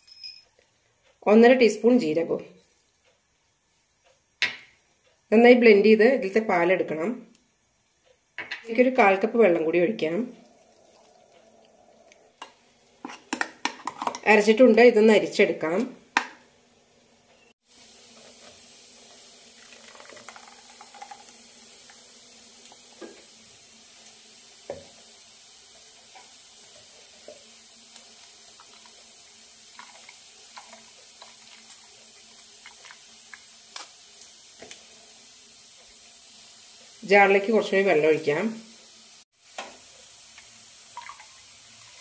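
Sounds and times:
low steady hiss: 0:00.0 - 0:42.0
liquid trickling: 0:10.3 - 0:13.0, 0:19.4 - 0:22.0, 0:40.9 - 0:42.0.

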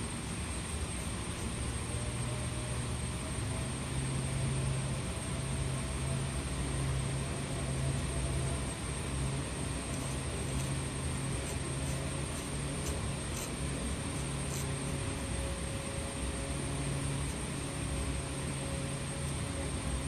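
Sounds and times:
droning background hum: 0:00.0 - 0:20.0
metal nib scratching: 0:09.9 - 0:14.8.

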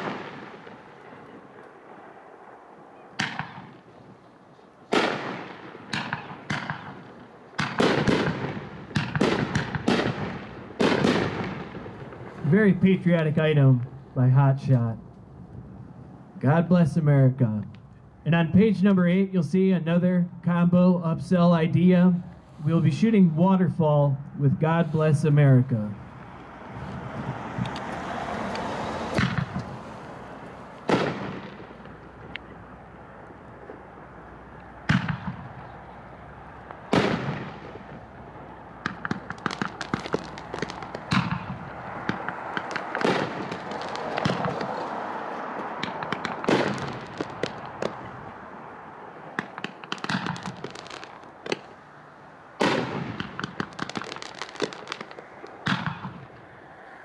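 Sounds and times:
rapid firework crackling: 0:00.0 - 0:01.2, 0:04.9 - 0:13.4, 0:28.3 - 0:32.5, 0:36.6 - 0:48.5, 0:49.2 - 0:51.8, 0:52.6 - 0:56.4
firework bangs: 0:00.0 - 0:02.3, 0:03.2 - 0:04.2, 0:04.9 - 0:14.9, 0:24.6 - 0:56.5
hiss of burning fireworks: 0:22.3 - 0:23.2, 0:36.8 - 0:48.1, 0:49.3 - 0:51.8, 0:52.6 - 0:56.1.

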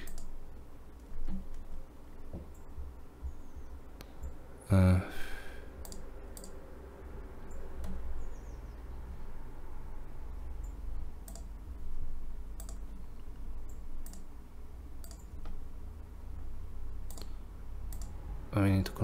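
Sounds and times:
computer mouse clicks: 0:00.0 - 0:00.4, 0:05.8 - 0:06.6, 0:07.5 - 0:08.0, 0:10.6 - 0:11.5, 0:12.6 - 0:12.9, 0:13.6 - 0:14.3, 0:15.0 - 0:15.6, 0:17.0 - 0:18.2
low steady hum: 0:00.0 - 0:19.0.

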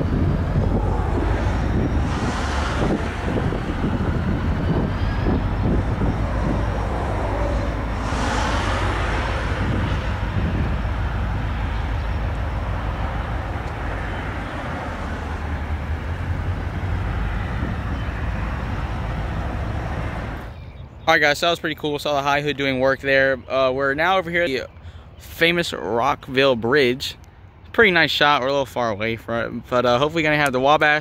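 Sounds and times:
diesel locomotive engine drone: 0:00.0 - 0:20.6
wind gusts on microphone: 0:00.0 - 0:21.0.

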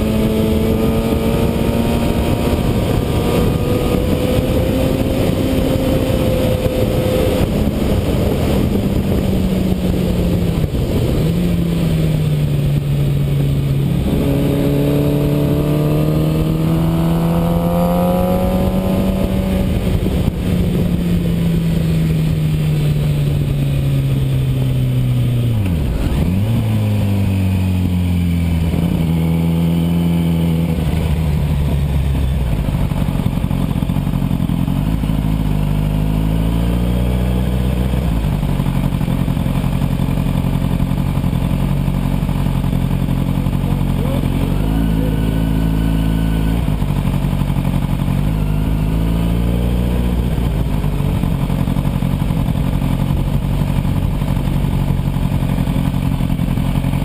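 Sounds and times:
wind rush: 0:00.0 - 0:24.5
motorcycle engine running: 0:00.0 - 0:57.0.

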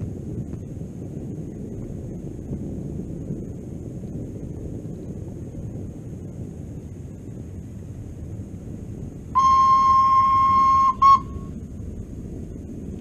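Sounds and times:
model train horn: 0:09.4 - 0:11.6.

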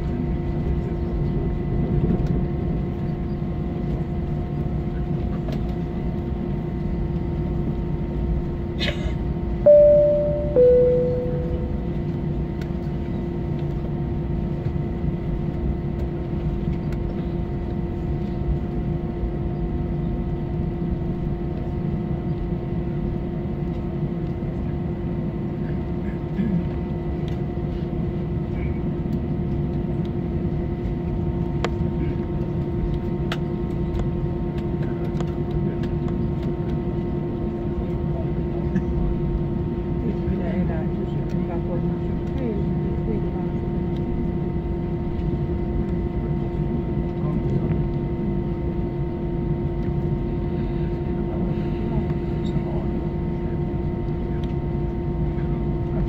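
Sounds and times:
aircraft cabin rumble: 0:00.0 - 0:56.0
two-tone cabin chime: 0:09.7 - 0:12.2.

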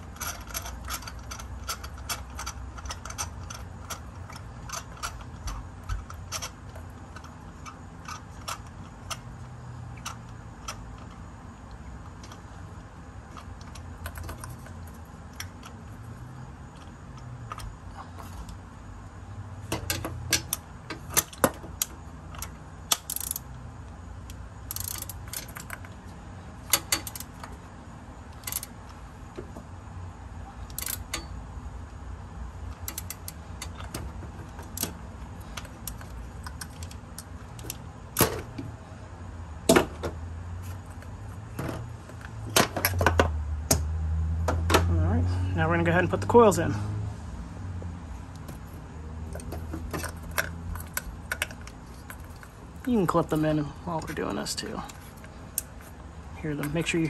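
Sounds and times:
socket wrench clicking: 0:00.0 - 0:09.4, 0:10.0 - 0:10.9, 0:19.7 - 0:23.6, 0:24.2 - 0:26.0, 0:26.7 - 0:27.6, 0:28.3 - 0:28.8, 0:30.7 - 0:31.4, 0:32.7 - 0:35.0.

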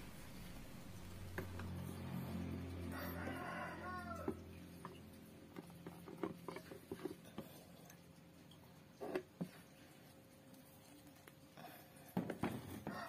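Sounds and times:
low hum: 0:00.0 - 0:05.6.

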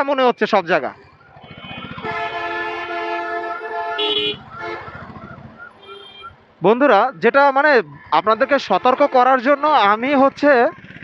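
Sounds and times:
engine pulsing: 0:01.0 - 0:02.3, 0:03.6 - 0:06.2, 0:10.2 - 0:11.0
vehicle horn blast: 0:01.5 - 0:04.8, 0:05.8 - 0:06.3.

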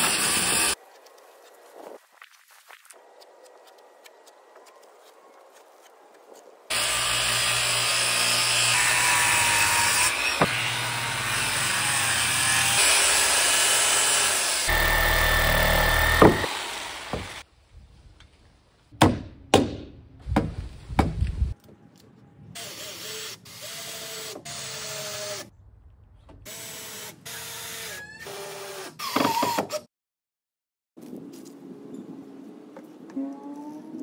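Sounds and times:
circular saw cutting wood: 0:00.0 - 0:00.8, 0:06.7 - 0:17.4.

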